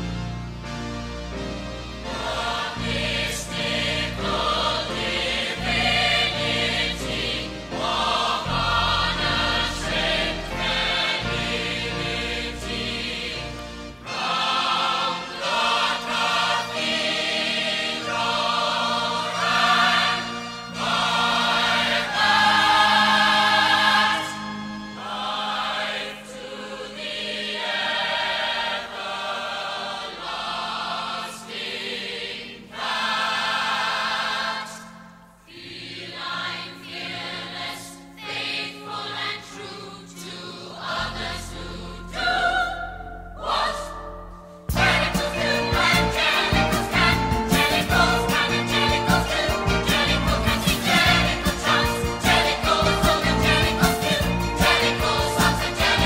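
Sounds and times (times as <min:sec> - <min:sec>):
ensemble singing in chorus: 0:02.0 - 0:56.0
band accompaniment: 0:44.3 - 0:56.0.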